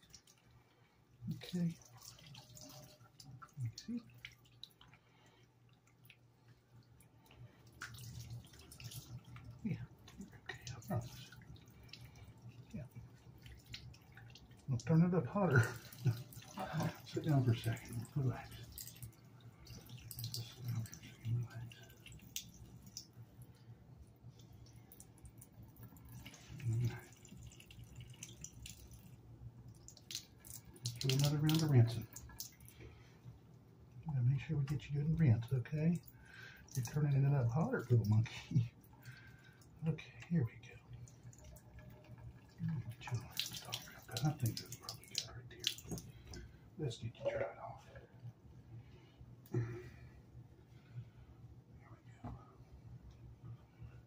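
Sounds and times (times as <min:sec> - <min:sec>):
water dripping into sink: 0:00.0 - 0:00.6, 0:01.3 - 0:32.9, 0:33.9 - 0:40.0, 0:40.6 - 0:48.3.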